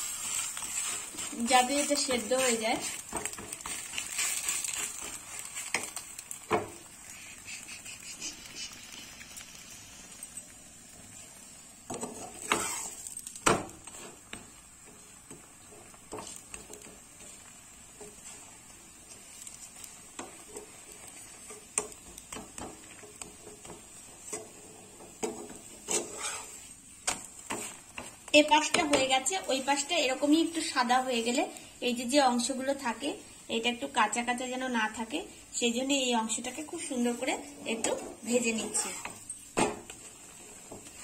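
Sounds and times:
faint oil sizzle: 0.0s - 41.0s
spatula tapping and scraping: 0.1s - 6.8s, 11.9s - 29.4s, 37.8s - 41.0s.

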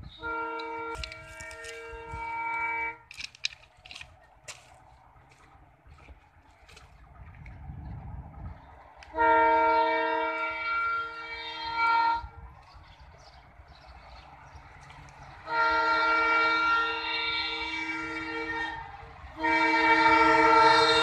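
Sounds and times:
locomotive air horn chord: 0.0s - 3.1s, 9.1s - 12.4s, 15.4s - 21.0s.

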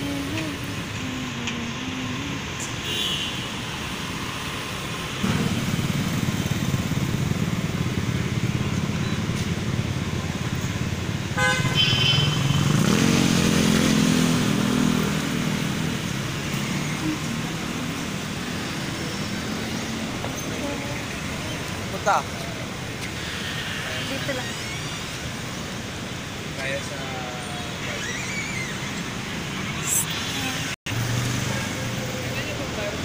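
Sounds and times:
passing vehicle engines: 0.0s - 33.0s
vehicle engine speeding up: 12.4s - 20.2s.

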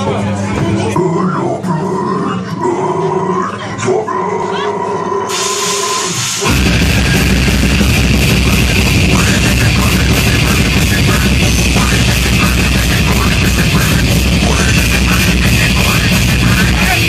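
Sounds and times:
death metal band playing live: 5.3s - 17.0s.

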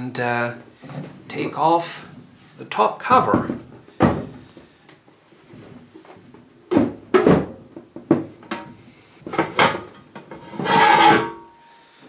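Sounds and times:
wooden cabinet knocks and clunks: 3.1s - 4.5s, 6.7s - 8.7s.

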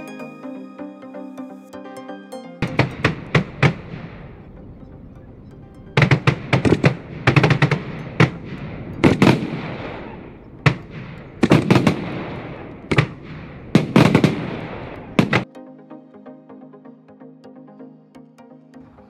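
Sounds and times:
fireworks bangs: 11.4s - 15.4s.

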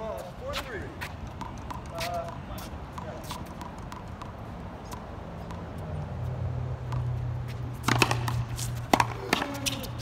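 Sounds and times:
racquetball hitting racquet and wall: 1.0s - 5.8s, 6.8s - 10.0s.

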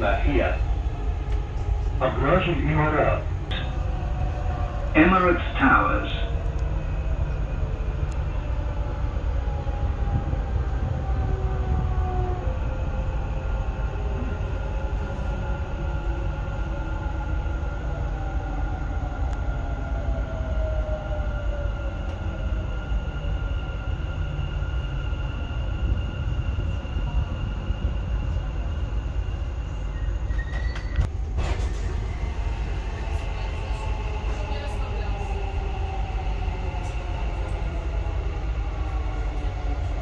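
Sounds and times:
train interior rumble: 0.0s - 40.0s.

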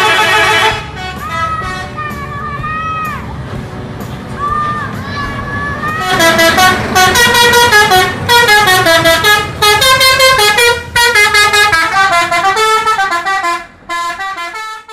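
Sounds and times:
musical air horn tune: 0.0s - 2.0s, 6.0s - 14.9s
bus engine rumble: 0.0s - 14.9s.

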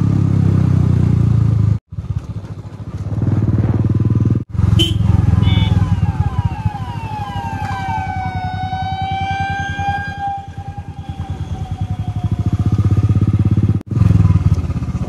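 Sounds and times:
motorcycle engine running: 0.0s - 15.0s
falling horn-like tone: 4.8s - 12.6s.

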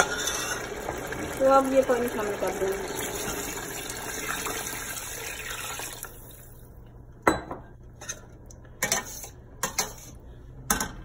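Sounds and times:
water pouring into a pot: 0.0s - 6.6s.

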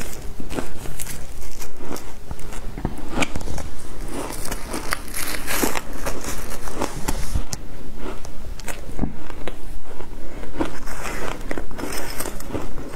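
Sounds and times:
ice being chewed and crunched: 0.0s - 12.9s.

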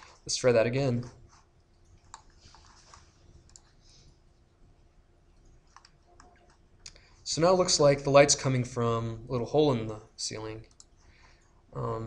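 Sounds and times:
computer mouse clicks: 1.7s - 3.8s, 5.4s - 7.0s, 10.6s - 11.0s.

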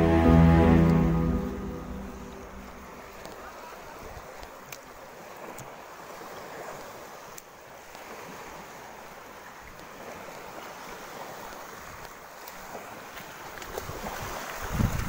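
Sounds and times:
waves washing onto beach: 0.0s - 15.0s
wind on microphone: 13.8s - 15.0s.

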